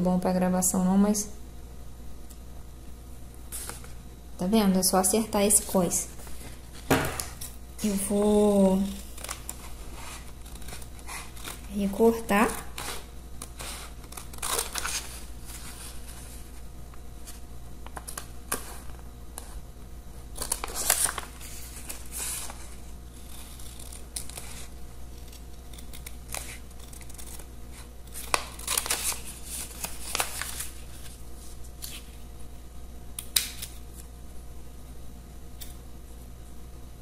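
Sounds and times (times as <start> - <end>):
paper rustling: 6.2 - 16.6, 20.4 - 32.2
scissors snipping paper: 7.8 - 15.2, 23.2 - 24.6, 25.2 - 30.6.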